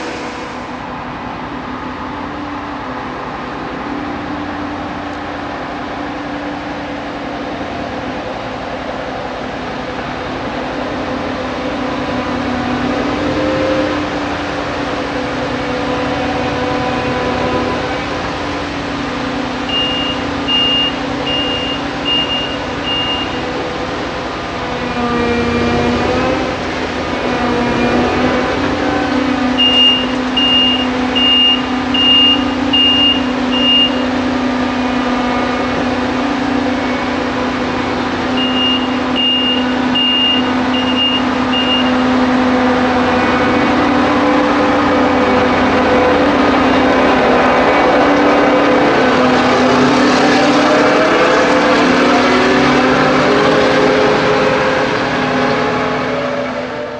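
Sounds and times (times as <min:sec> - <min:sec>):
diesel engine running: 0:00.0 - 0:56.9
reversing alarm beeping: 0:19.6 - 0:23.6, 0:29.5 - 0:34.3, 0:38.3 - 0:42.3.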